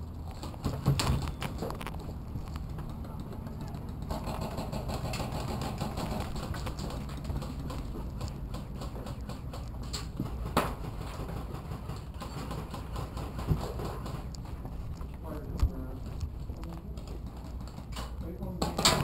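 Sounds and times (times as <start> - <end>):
footsteps on dirt floor: 5.8 - 18.2.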